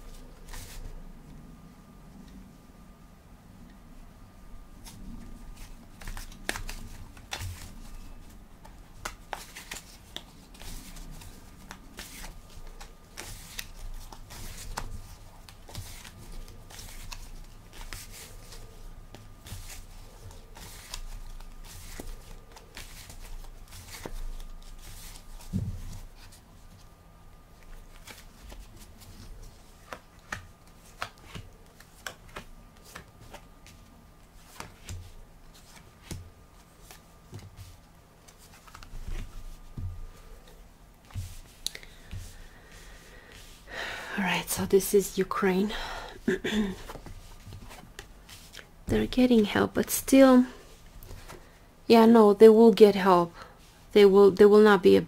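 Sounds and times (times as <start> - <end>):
cards being shuffled: 0.1 - 0.9, 4.8 - 26.8, 27.6 - 43.6, 46.8 - 48.7, 50.9 - 51.4.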